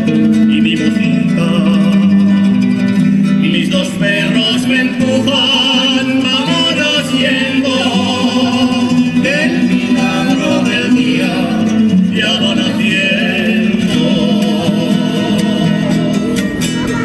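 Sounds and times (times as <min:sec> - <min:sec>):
acoustic guitar: 0:00.0 - 0:17.0
plucked lute: 0:00.0 - 0:17.0
man and women singing: 0:03.4 - 0:17.0.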